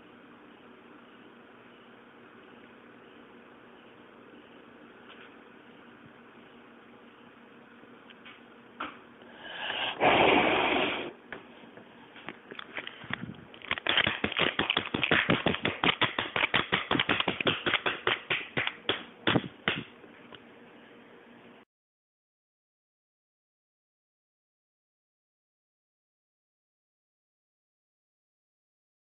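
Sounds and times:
breath blowing out candles: 0:09.3 - 0:11.2
people clapping: 0:13.9 - 0:19.9.

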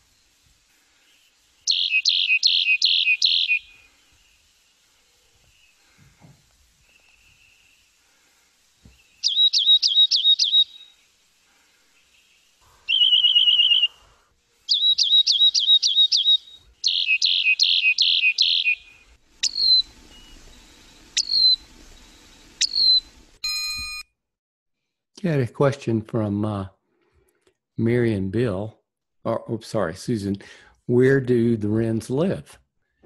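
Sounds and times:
wren singing buzzy whistled phrases: 0:00.0 - 0:06.0, 0:06.8 - 0:08.0, 0:08.9 - 0:24.0.

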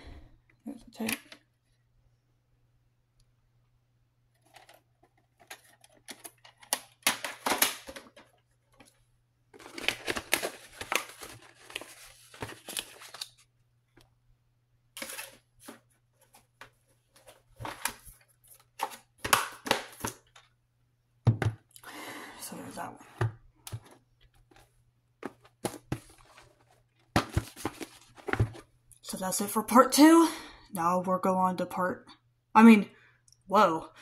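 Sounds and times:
plastic cassette case clicks and rustles: 0:04.4 - 0:09.0, 0:09.6 - 0:13.4, 0:17.6 - 0:20.5, 0:23.7 - 0:28.6.

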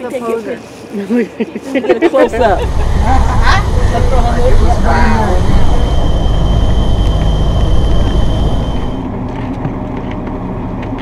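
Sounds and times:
low hum: 0:02.3 - 0:09.1
steady high whine: 0:02.3 - 0:09.1
coach engine and tyres rumbling: 0:02.3 - 0:11.0.

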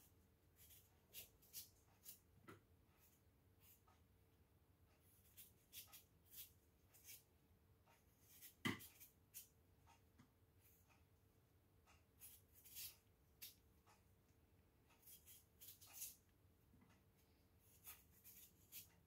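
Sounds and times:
knife scraping potato skin: 0:00.6 - 0:02.3, 0:05.0 - 0:07.3, 0:08.1 - 0:09.5, 0:12.2 - 0:13.6, 0:15.0 - 0:16.3, 0:17.6 - 0:19.0.

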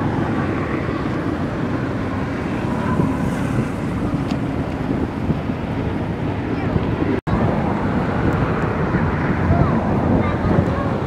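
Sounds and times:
waves washing: 0:00.0 - 0:11.0
wind rumble on microphone: 0:00.0 - 0:11.0.

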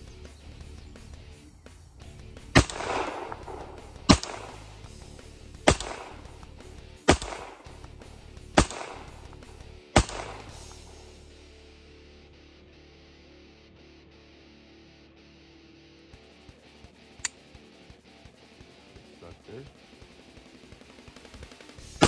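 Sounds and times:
pistol shots: 0:02.5 - 0:04.8, 0:05.6 - 0:07.9, 0:08.5 - 0:11.1.

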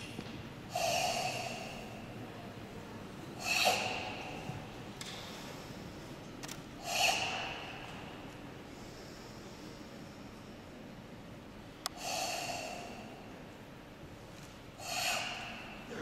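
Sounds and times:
forceful hissing exhalations: 0:06.8 - 0:07.7, 0:14.8 - 0:15.7.

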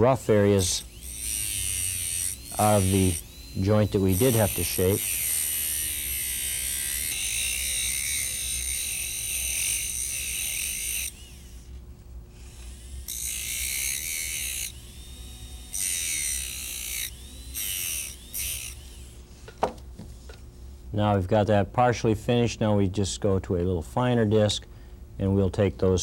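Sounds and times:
dental handpiece whining: 0:00.0 - 0:19.3.

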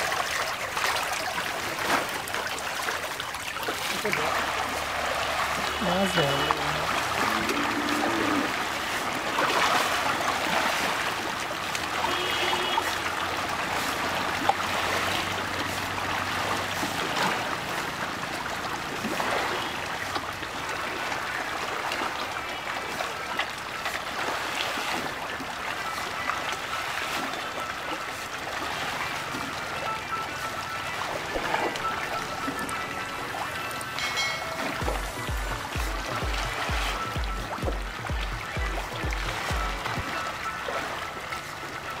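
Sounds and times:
fish splashing at water surface: 0:00.0 - 0:29.8.

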